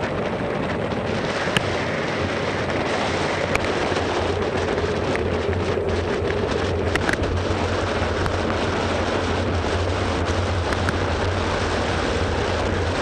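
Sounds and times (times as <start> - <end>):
wind rushing on microphone: 0.0 - 13.0
sharp clicks: 6.2 - 7.3.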